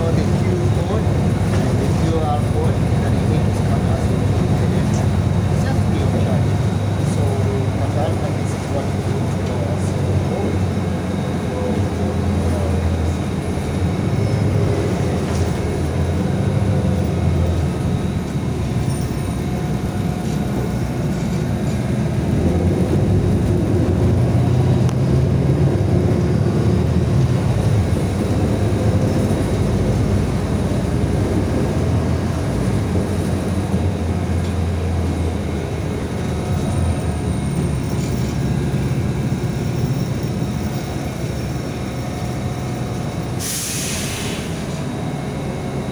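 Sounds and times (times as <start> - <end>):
bus engine and road rumble: 0.0 - 45.9.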